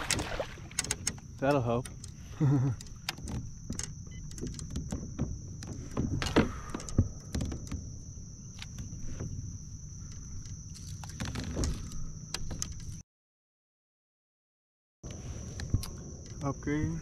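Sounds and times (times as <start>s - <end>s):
fishing tackle clicks and knocks: 0.0s - 2.2s.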